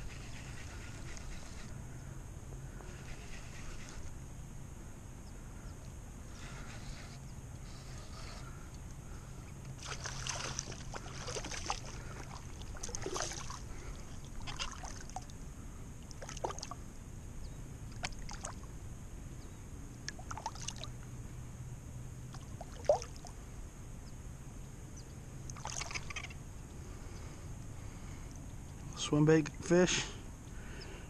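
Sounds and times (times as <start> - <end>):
water splashing and sloshing: 9.8 - 15.4, 16.0 - 16.8, 17.9 - 18.7, 20.0 - 21.0, 22.3 - 23.4, 25.5 - 26.3.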